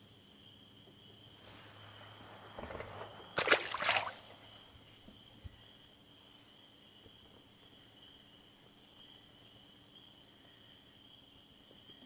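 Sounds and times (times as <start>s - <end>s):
crickets chirring: 0.0s - 12.0s
rustle of water: 1.4s - 5.0s
fish splashing into water: 2.6s - 4.7s.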